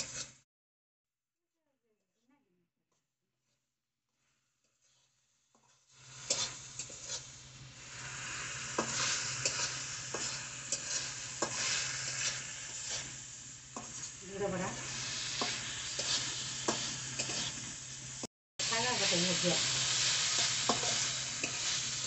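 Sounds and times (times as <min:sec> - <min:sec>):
shrimp sizzling in oil: 0:00.0 - 0:00.4, 0:04.2 - 0:22.0
metal spatula scraping a pan: 0:04.6 - 0:17.8, 0:19.0 - 0:22.0.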